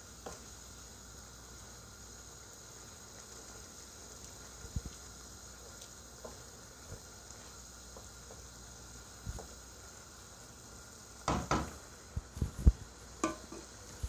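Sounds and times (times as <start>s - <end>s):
spatula stirring sauce in pan: 0.0s - 1.1s, 1.9s - 10.4s
faint simmering sizzle: 0.0s - 14.0s
spatula knocking against pan: 11.3s - 11.7s, 13.2s - 13.6s.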